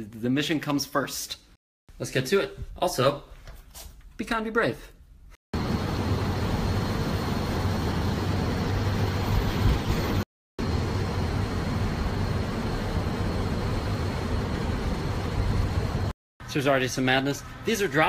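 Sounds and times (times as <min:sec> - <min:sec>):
aircraft engines running: 0:05.6 - 0:16.1.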